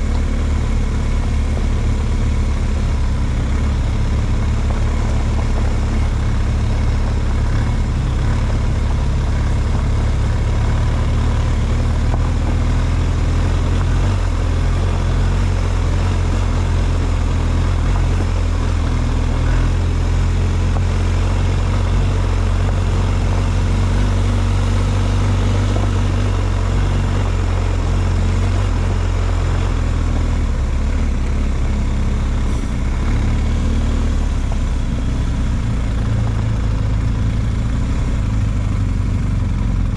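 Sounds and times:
vehicle engine droning: 0.0s - 39.9s.

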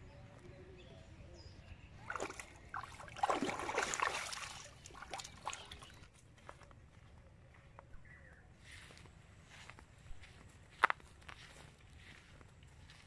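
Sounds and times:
water splashing: 2.0s - 6.1s.

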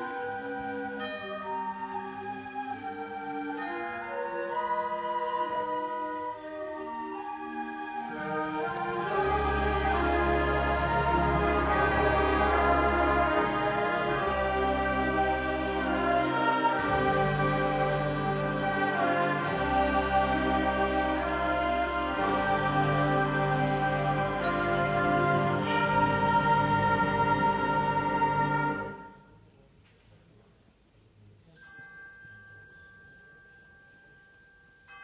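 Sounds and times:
band playing slow chords: 8.1s - 29.2s.

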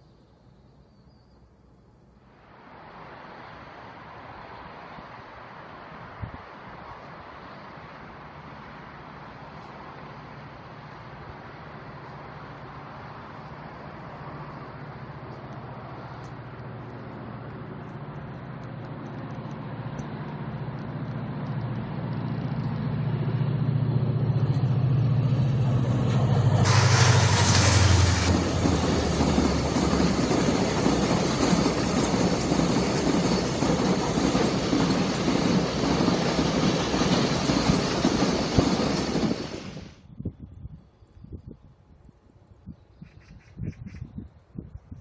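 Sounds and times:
locomotive engine drone: 2.2s - 40.0s
train wheels rumbling on rail: 4.4s - 40.1s
wheels clickety-clack over joints: 12.0s - 40.0s
brief hiss: 26.1s - 28.7s.

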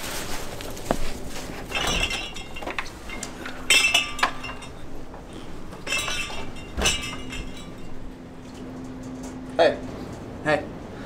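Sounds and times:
blinds rattling against door: 1.4s - 5.0s, 5.6s - 8.1s.

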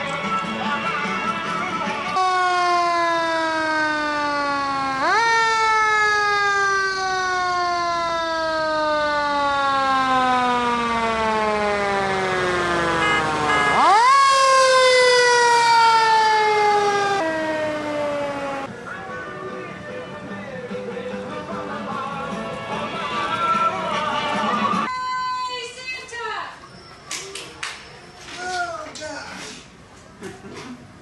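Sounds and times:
fire engine siren wailing: 2.2s - 19.8s.

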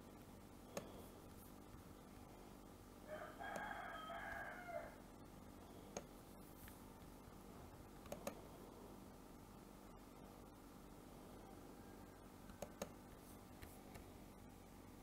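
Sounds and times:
computer mouse clicks: 0.7s - 1.0s, 5.9s - 7.1s, 8.0s - 8.4s, 12.4s - 13.0s.

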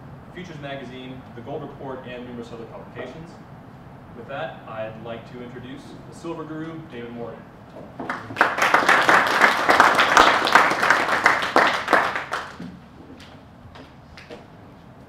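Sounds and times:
audience applauding: 8.0s - 13.3s.

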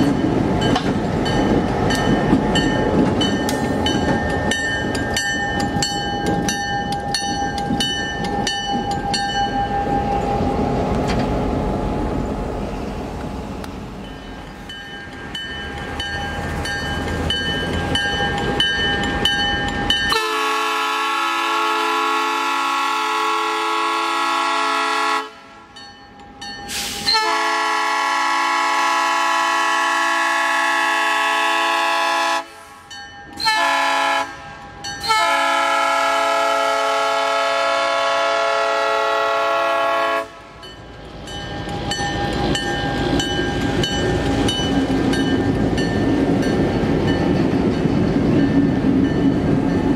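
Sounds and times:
crossing signal bell ringing: 0.0s - 10.5s, 14.0s - 20.6s, 25.7s - 27.3s, 34.5s - 35.4s, 40.6s - 49.9s
locomotive air horn blasts: 20.1s - 25.6s, 26.7s - 32.8s, 33.4s - 40.6s.

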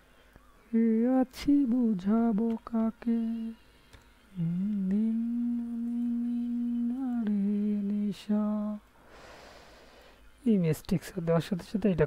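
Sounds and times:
person humming: 0.8s - 10.0s.

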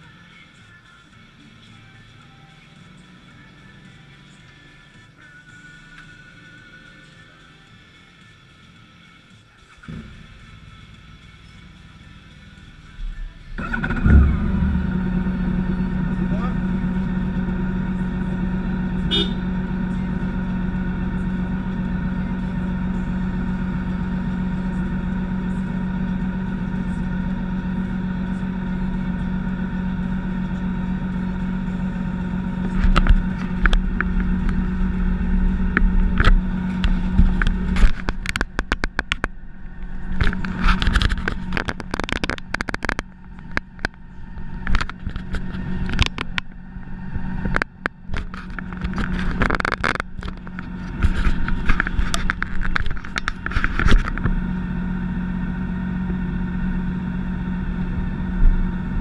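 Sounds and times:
motorcycle engine idling: 0.0s - 59.0s
knocks and rubbing from handling: 40.1s - 43.9s.

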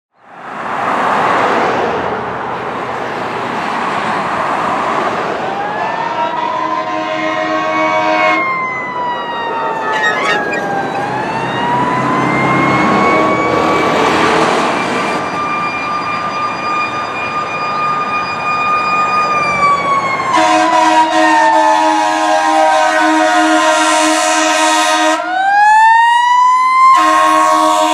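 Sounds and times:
siren wailing: 4.9s - 27.9s
warbling siren: 5.4s - 27.9s
truck air horn blasts: 6.3s - 8.5s, 20.3s - 25.3s, 27.0s - 27.9s.

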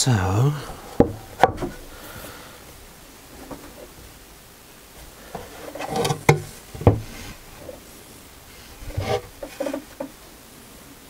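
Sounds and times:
wood rubbing and shuffling: 0.4s - 11.0s
sharp wooden knocks: 0.9s - 1.9s, 6.0s - 7.1s.

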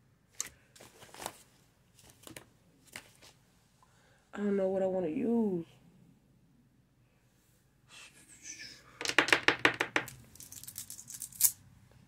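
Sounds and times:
deck of cards riffling: 9.0s - 11.6s.

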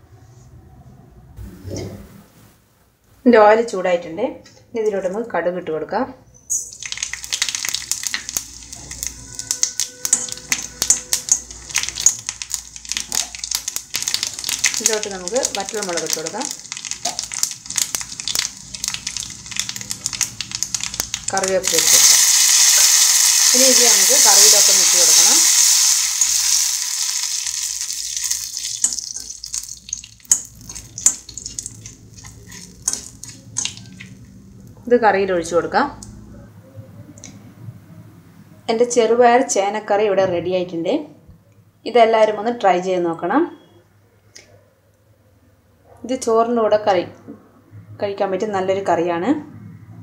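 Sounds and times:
mustard seeds popping in hot oil: 6.5s - 34.8s.

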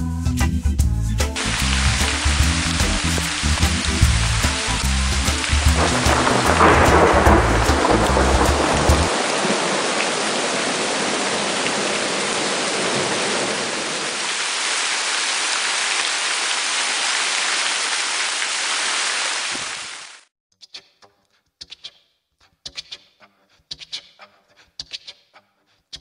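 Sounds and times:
heavy rain: 1.4s - 20.3s
low thunder rumble: 1.5s - 14.0s.

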